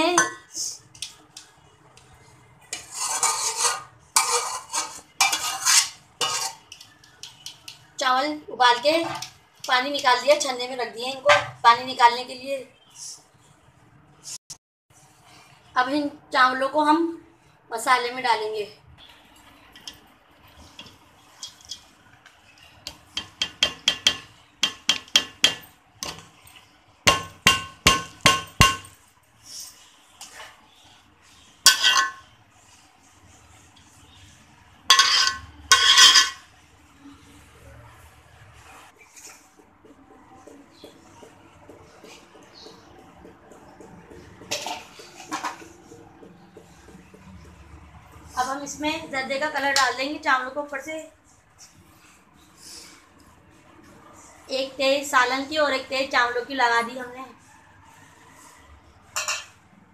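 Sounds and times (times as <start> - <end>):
metal spoon tapping pot rim: 22.9 - 26.2.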